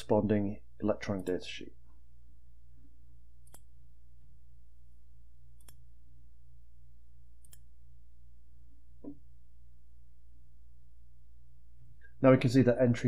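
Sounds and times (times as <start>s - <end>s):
low electrical hum: 0.0s - 13.0s
computer mouse clicks: 1.2s - 1.4s, 3.4s - 3.7s, 5.6s - 5.9s, 7.4s - 7.7s.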